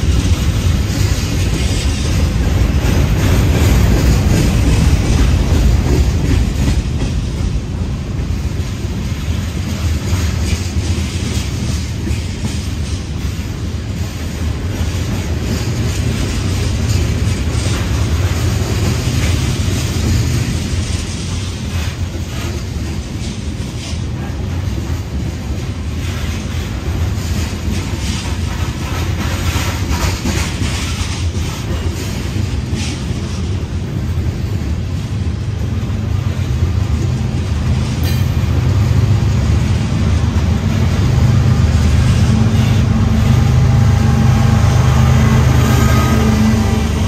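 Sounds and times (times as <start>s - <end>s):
train wheels rumbling on rails: 0.0s - 47.0s.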